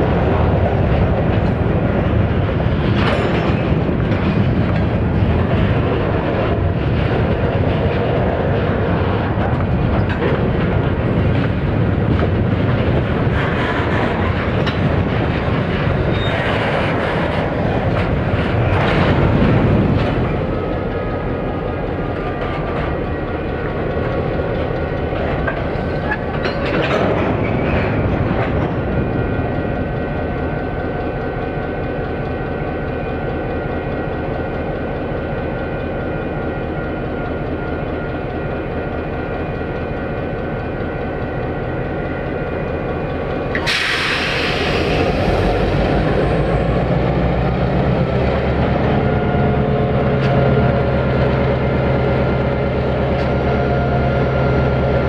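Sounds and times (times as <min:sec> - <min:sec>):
diesel locomotive engine running: 0:00.0 - 0:55.0
rail and wheel noise: 0:00.0 - 0:55.0
sudden air hiss: 0:43.6 - 0:45.4.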